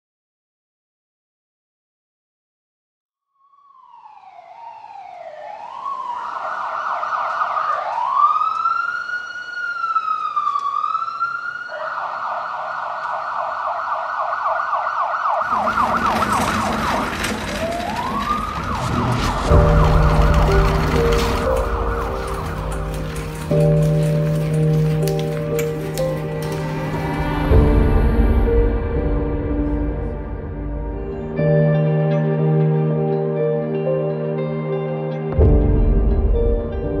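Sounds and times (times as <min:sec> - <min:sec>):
ambulance siren wailing and yelping: 0:03.6 - 0:27.9
busy rush of noise: 0:15.4 - 0:27.8
music: 0:19.0 - 0:37.0.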